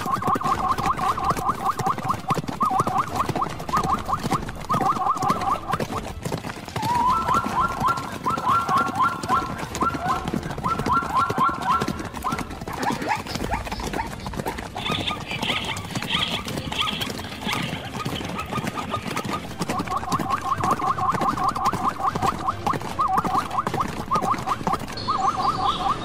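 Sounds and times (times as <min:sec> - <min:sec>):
animal yelping calls: 0:00.0 - 0:06.0, 0:06.8 - 0:26.0
high chirping animal calls: 0:07.0 - 0:26.0.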